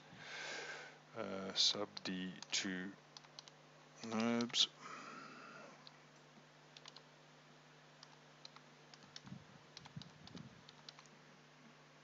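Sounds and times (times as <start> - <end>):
keyboard keystrokes: 6.8 - 7.0, 8.0 - 11.1.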